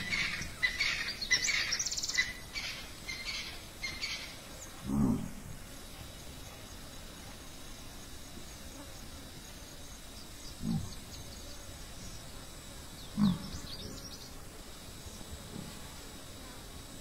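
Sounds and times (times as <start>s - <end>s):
bird chirps: 0.0s - 4.4s
antelope grunting: 4.8s - 5.6s, 10.6s - 11.1s, 13.1s - 13.6s.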